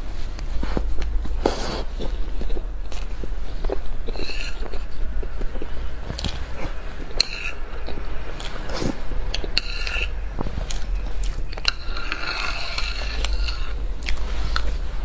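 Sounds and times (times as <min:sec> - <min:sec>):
eating mouth sounds: 0:01.5 - 0:14.8
spoon scraping a plate: 0:04.0 - 0:05.8, 0:06.6 - 0:10.2, 0:11.0 - 0:13.8.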